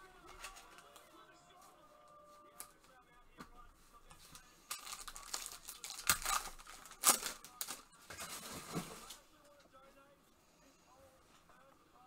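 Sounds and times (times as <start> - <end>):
foil wrapper ripping: 4.7 - 7.8
foil wrapper crinkling: 4.7 - 9.2.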